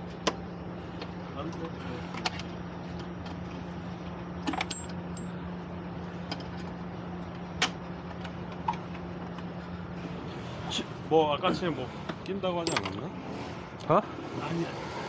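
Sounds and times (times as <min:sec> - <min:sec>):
low mechanical hum: 0:00.0 - 0:15.0
metal tools clinking: 0:04.4 - 0:05.4, 0:12.6 - 0:13.0.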